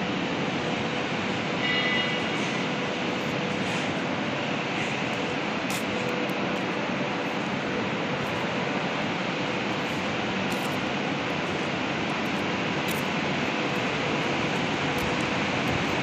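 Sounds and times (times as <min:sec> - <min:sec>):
rushing machinery noise: 0:00.0 - 0:16.0.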